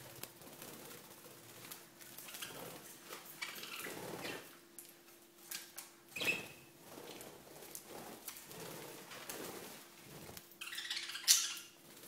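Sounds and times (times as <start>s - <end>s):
wings flapping: 0.0s - 4.5s, 6.2s - 10.8s.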